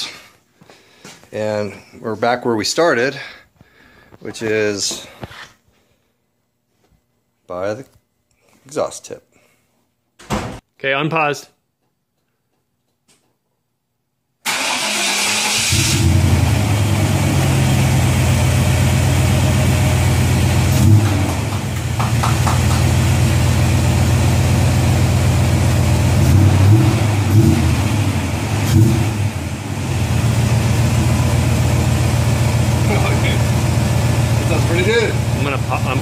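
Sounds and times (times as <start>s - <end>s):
engine starting: 14.4s - 16.2s
engine idling: 15.7s - 36.0s.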